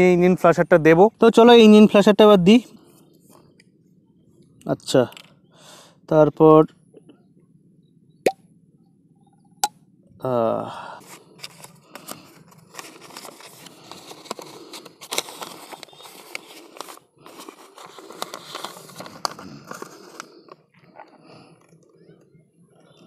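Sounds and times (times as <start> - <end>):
crinkly wrapper rustling: 11.0 - 21.8.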